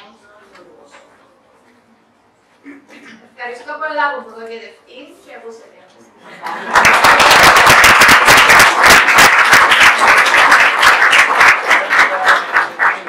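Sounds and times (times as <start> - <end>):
audience applauding: 6.5 - 13.0.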